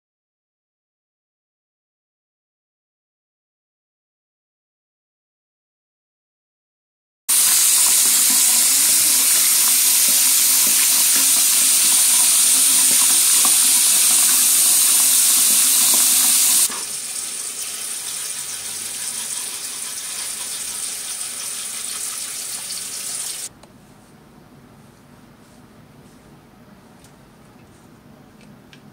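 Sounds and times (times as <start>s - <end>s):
tap water running into basin: 7.3s - 23.5s.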